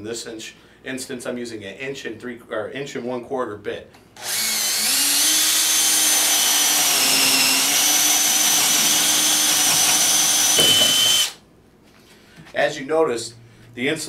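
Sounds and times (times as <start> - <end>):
cordless drill boring into wood: 4.2 - 11.4.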